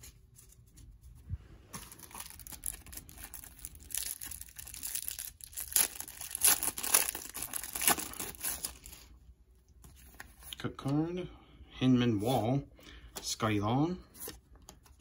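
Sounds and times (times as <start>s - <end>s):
plastic wrapper tearing and crinkling: 1.8s - 9.1s.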